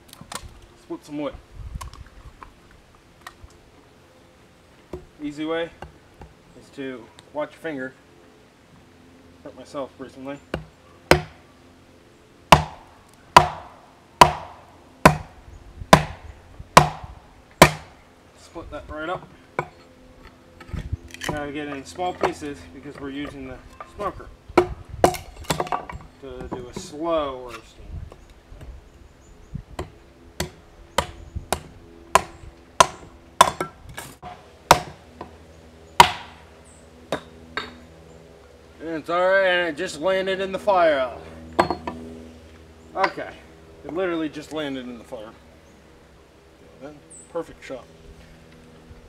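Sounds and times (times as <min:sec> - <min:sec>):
hatchet chopping wood: 0:10.5 - 0:11.4, 0:12.5 - 0:18.0, 0:20.6 - 0:27.0, 0:29.8 - 0:35.4, 0:36.0 - 0:36.4, 0:41.6 - 0:42.0.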